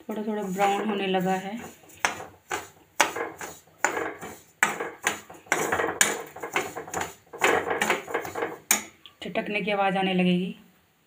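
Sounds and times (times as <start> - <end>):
seeds rustling: 0.0 - 3.6
spatula scraping pan: 0.0 - 9.0.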